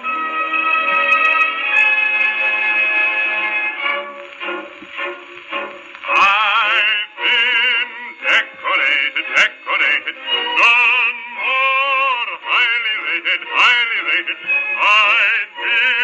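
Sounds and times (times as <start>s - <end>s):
man singing on gramophone record: 4.4s - 16.0s.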